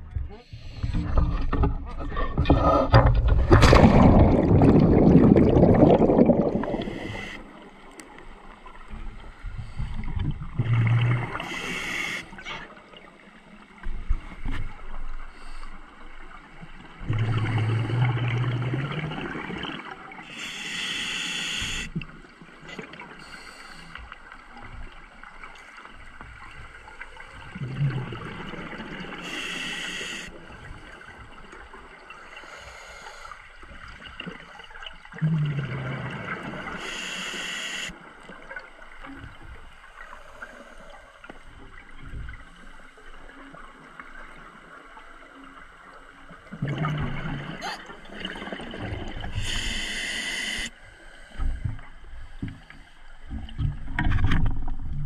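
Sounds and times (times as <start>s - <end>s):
rush of water and bubbles: 0.0s - 55.0s
scuba regulator breathing: 6.6s - 7.5s, 11.4s - 12.4s, 20.3s - 21.9s, 23.2s - 24.1s, 29.2s - 30.3s, 32.3s - 33.5s, 36.6s - 37.9s, 49.3s - 51.7s.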